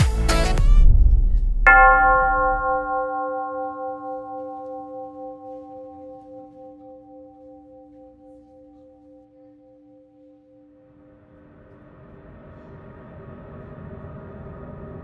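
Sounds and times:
background music: 0:00.0 - 0:10.6
bell tone ringing: 0:01.7 - 0:08.3.

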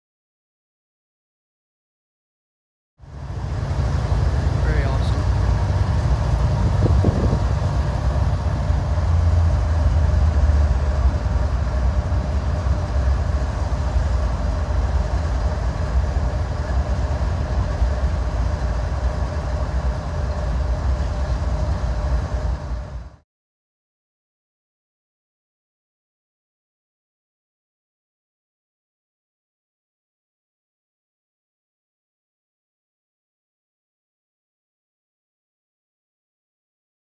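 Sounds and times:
locomotive engine rumble: 0:03.0 - 0:23.2
thin steady whine: 0:03.0 - 0:23.2.

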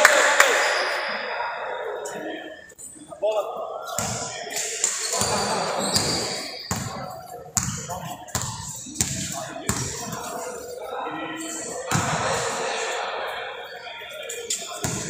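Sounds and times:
background voices: 0:00.0 - 0:15.0
basketball bouncing on court floor: 0:07.6 - 0:10.2.

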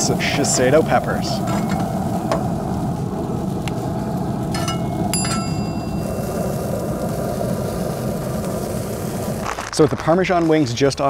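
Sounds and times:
peppers sizzling on a griddle: 0:00.0 - 0:10.6
metal utensil striking metal: 0:01.4 - 0:02.0, 0:04.5 - 0:06.2.

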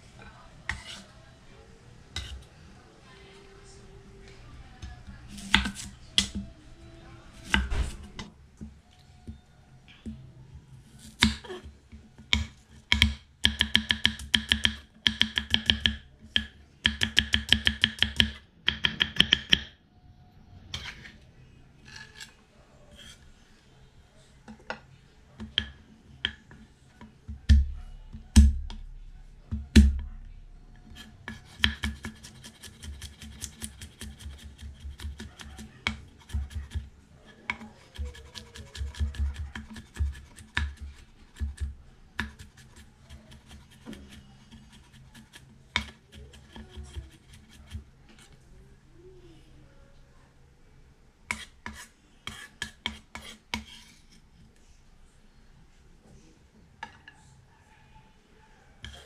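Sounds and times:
knife chopping on wooden board: 0:31.0 - 0:36.9.

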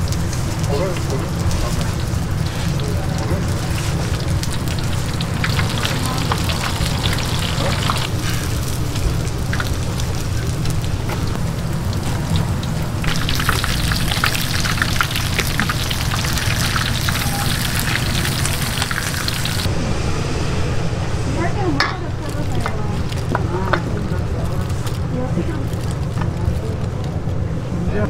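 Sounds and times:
hot oil crackling and sizzling: 0:00.0 - 0:19.7, 0:22.1 - 0:26.9
low hum: 0:03.4 - 0:23.6.

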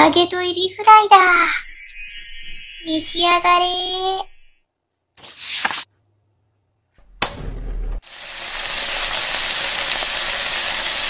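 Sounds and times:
frying sizzle: 0:08.0 - 0:11.0.

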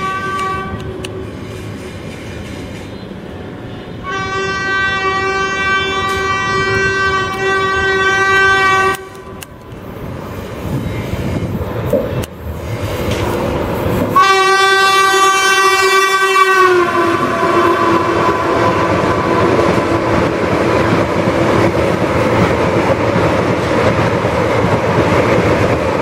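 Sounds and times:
locomotive horn blast: 0:00.0 - 0:01.1, 0:03.7 - 0:09.4, 0:14.1 - 0:20.2
train rumble: 0:00.0 - 0:26.0.

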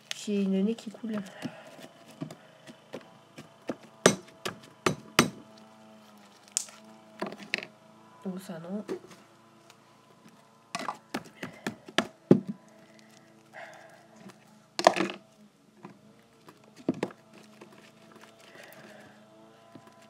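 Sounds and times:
objects knocking and clacking: 0:10.8 - 0:12.6, 0:14.8 - 0:15.2.

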